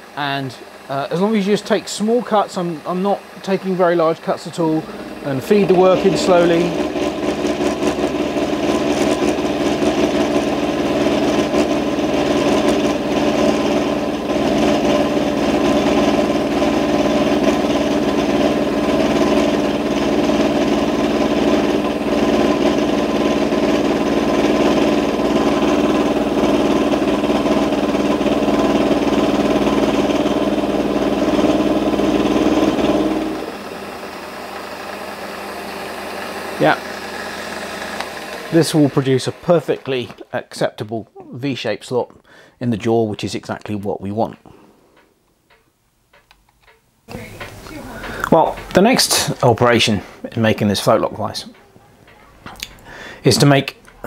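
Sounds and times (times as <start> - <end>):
lathe running: 0.0 - 41.2, 47.1 - 54.0
milling cutter machining with chatter: 0.3 - 9.4, 33.0 - 40.3.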